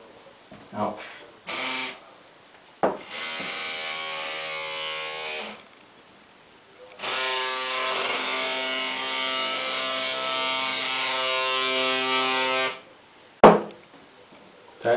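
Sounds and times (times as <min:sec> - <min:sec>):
small electric motor whining: 0:01.5 - 0:02.0, 0:03.0 - 0:05.7, 0:07.0 - 0:12.8.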